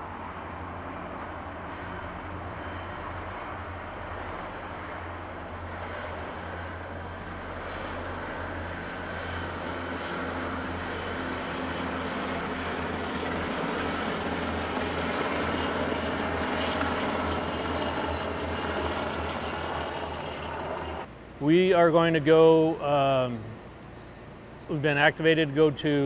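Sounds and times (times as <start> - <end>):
helicopters flying past: 0.0 - 26.0.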